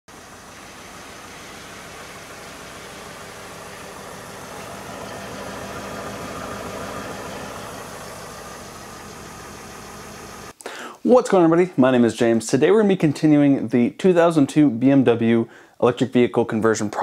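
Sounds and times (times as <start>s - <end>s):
electric motor humming and whirring: 0.1s - 10.5s.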